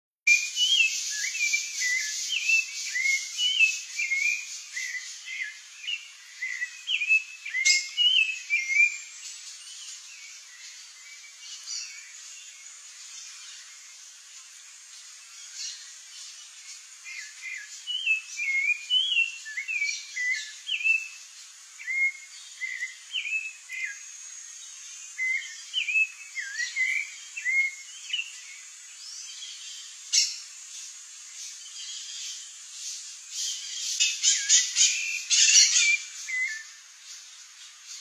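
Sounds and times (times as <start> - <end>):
thrush singing whistled phrases: 0.3 - 9.2, 17.0 - 21.2, 21.8 - 24.0, 25.2 - 28.4, 34.0 - 36.8.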